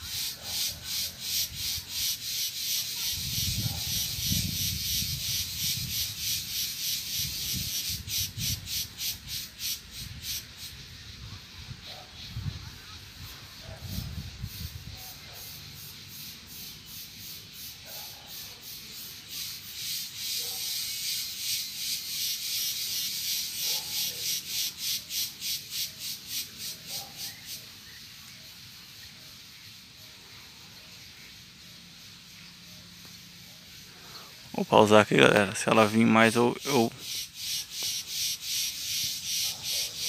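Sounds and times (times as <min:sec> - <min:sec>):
insect pulsing buzz: 0:00.0 - 0:11.2, 0:12.2 - 0:28.6, 0:35.8 - 0:40.0.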